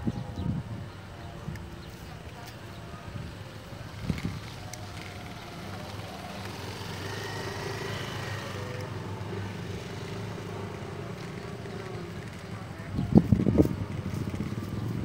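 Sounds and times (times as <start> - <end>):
vehicle engine passing: 3.9 - 15.0.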